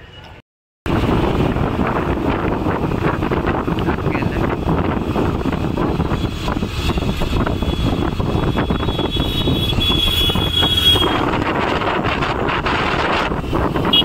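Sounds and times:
motorcycle engine and road noise: 0:00.0 - 0:14.0
wind rushing on microphone: 0:00.9 - 0:14.0.

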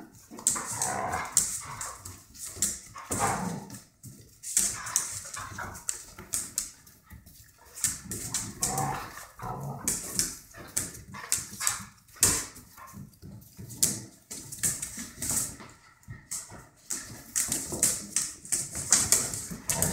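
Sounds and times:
dogs scuffling: 0:00.0 - 0:19.9
claws clicking on tile: 0:00.2 - 0:19.9
dogs vocalizing: 0:00.4 - 0:03.8, 0:04.6 - 0:13.1, 0:19.5 - 0:19.9.

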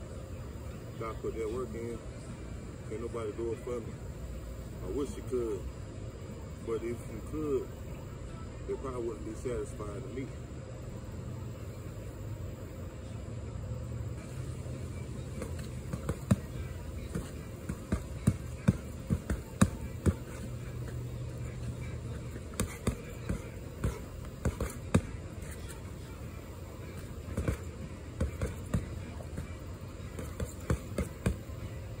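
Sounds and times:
boxing gloves punching a pad: 0:15.2 - 0:25.8, 0:26.8 - 0:31.6.

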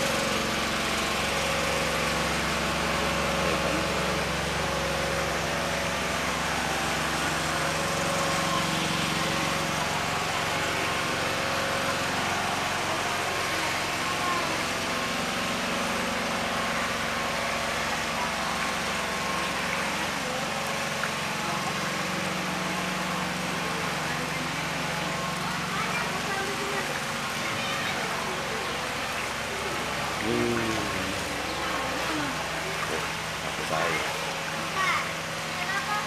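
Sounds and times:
small engine running: 0:00.0 - 0:36.0.

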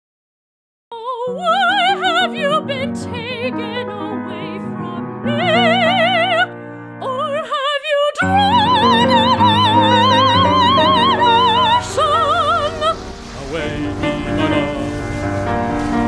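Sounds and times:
soprano singing opera: 0:00.9 - 0:15.6
orchestral accompaniment: 0:08.8 - 0:16.0.

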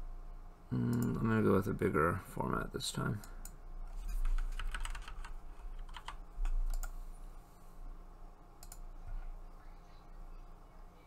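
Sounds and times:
keyboard typing clicks: 0:03.2 - 0:07.0, 0:08.6 - 0:08.9.

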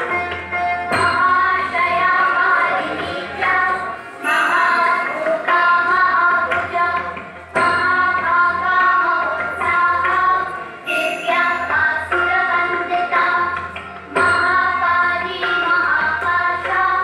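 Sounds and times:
devotional song with instruments: 0:00.0 - 0:17.0.

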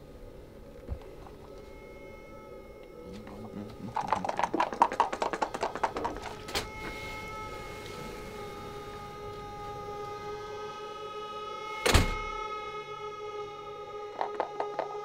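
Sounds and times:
high drone of held tones: 0:00.0 - 0:15.0
fast rattling clatter: 0:04.0 - 0:06.4.

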